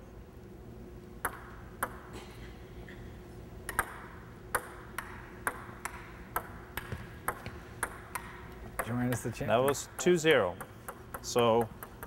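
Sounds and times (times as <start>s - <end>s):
ball bouncing on table: 1.2s - 2.0s, 3.7s - 9.9s, 10.5s - 12.0s
ping pong ball clicking off paddles: 1.2s - 2.1s, 3.6s - 12.0s.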